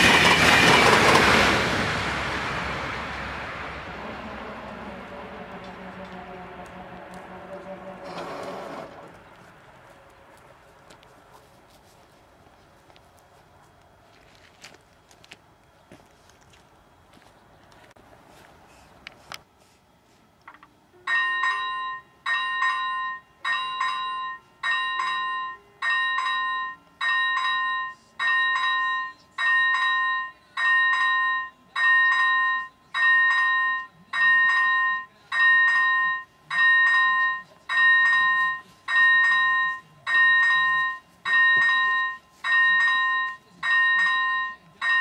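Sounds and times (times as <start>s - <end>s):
level crossing bell clanging: 21.1s - 45.0s.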